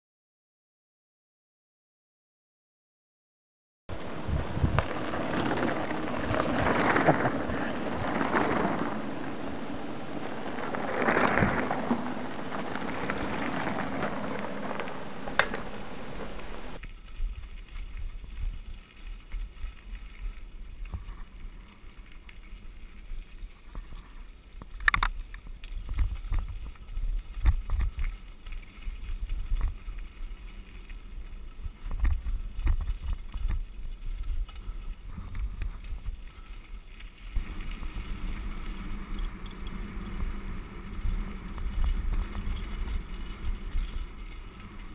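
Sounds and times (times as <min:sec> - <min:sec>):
wind rumble on microphone: 0:03.9 - 0:44.9
stones rattling and knocking: 0:10.2 - 0:16.8.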